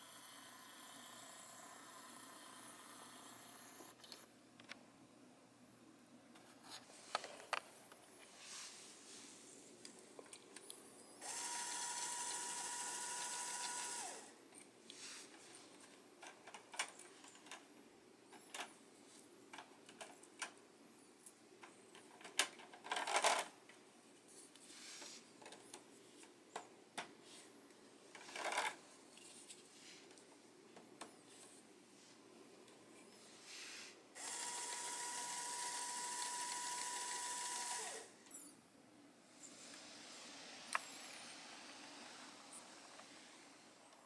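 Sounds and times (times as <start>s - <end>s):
small electric motor whine: 0.0s - 4.2s, 11.2s - 14.4s, 34.2s - 38.1s, 39.4s - 43.8s
plastic parts clicking and rattling: 15.3s - 17.7s, 18.3s - 18.8s, 19.5s - 20.6s, 21.2s - 23.8s, 25.4s - 27.2s, 28.1s - 31.1s
rustling clatter: 28.1s - 30.1s.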